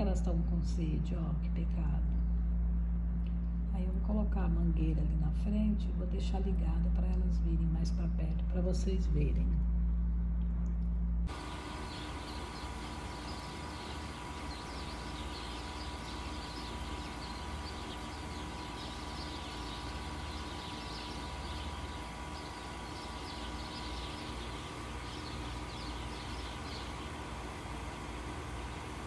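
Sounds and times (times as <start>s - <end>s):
low mechanical hum: 0.0s - 29.0s
small birds chirping: 11.3s - 29.0s.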